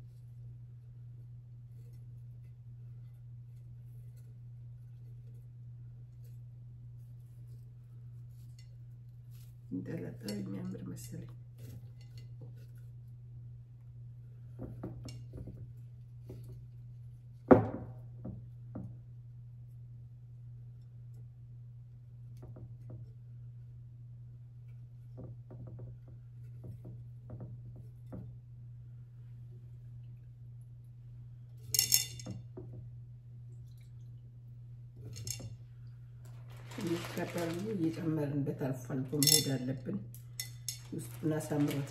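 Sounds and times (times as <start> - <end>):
knocks and clinks of glass vase: 31.7 - 32.8, 39.2 - 39.6
glass clinking: 31.8 - 32.4, 39.2 - 39.6, 40.4 - 41.8.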